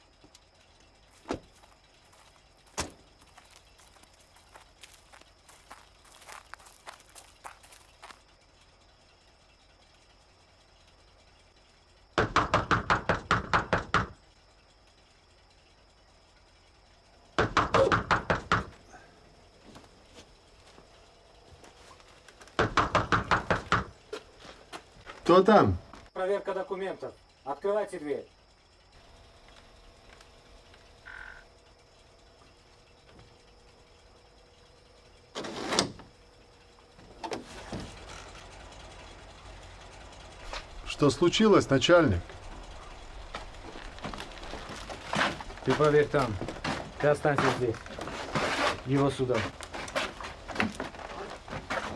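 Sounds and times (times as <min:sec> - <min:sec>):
loud knocking on door: 0:12.2 - 0:14.2, 0:17.4 - 0:18.7, 0:22.6 - 0:23.9.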